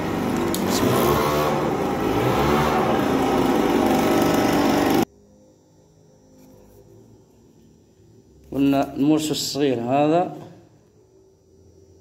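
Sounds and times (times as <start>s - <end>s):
engine running: 0.0s - 5.1s.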